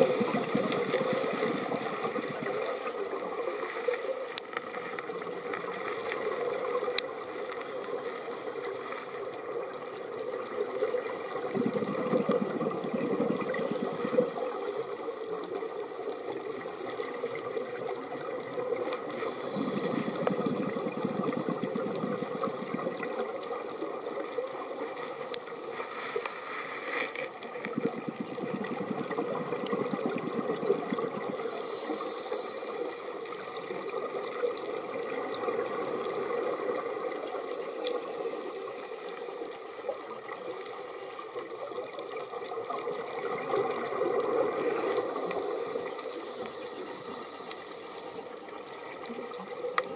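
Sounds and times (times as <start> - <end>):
exhaled bubbles rumbling: 0.0 - 3.5, 8.6 - 16.5, 17.3 - 24.9, 27.3 - 32.0, 41.6 - 47.2
underwater hiss: 0.0 - 49.9.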